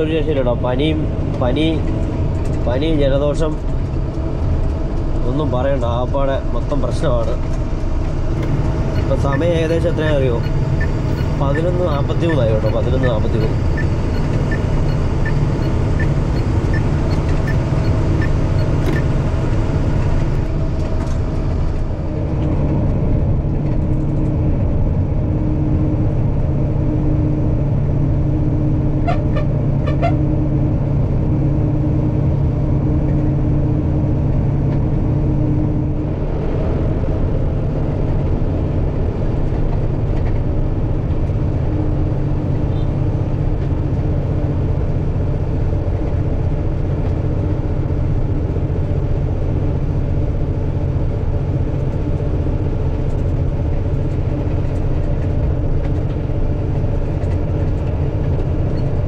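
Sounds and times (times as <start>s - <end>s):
road noise: 0.0s - 59.0s
truck diesel engine droning: 0.0s - 59.0s
light regular ticking: 7.5s - 20.5s
horn beeps: 8.4s - 19.2s.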